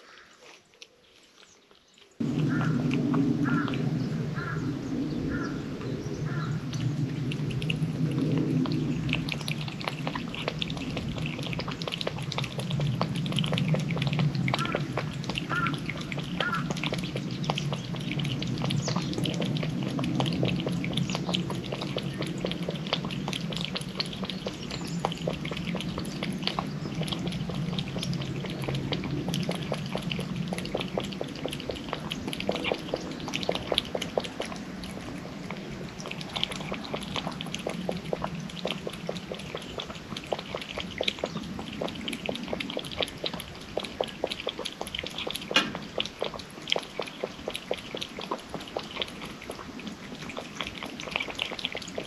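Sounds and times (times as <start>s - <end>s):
cat lapping water: 2.2s - 52.0s.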